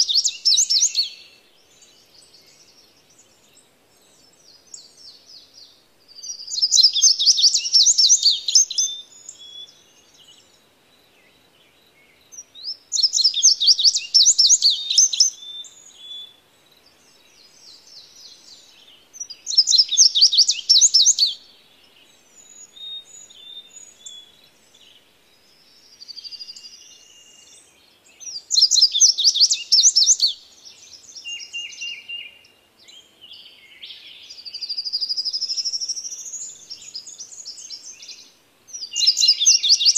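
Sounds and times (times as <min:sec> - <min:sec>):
bird twittering: 0:00.0 - 0:01.3, 0:06.2 - 0:09.8, 0:12.3 - 0:16.4, 0:17.4 - 0:21.5, 0:28.2 - 0:32.5, 0:34.2 - 0:39.9
soft bird chirps: 0:00.0 - 0:39.9.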